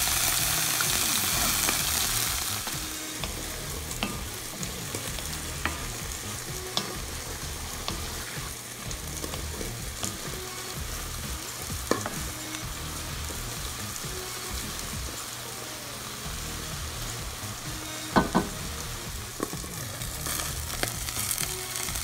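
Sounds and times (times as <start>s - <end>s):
vegetables sizzling in a pan: 0.0s - 22.0s
wooden spoon knocking pan: 11.8s - 12.3s, 18.2s - 18.6s.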